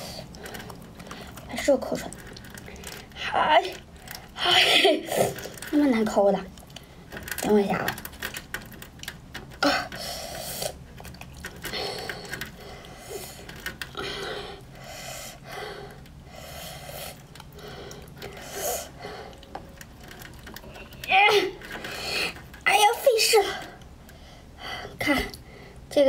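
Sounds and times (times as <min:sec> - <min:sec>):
person breathing noisily: 0:09.6 - 0:10.8, 0:11.6 - 0:19.6.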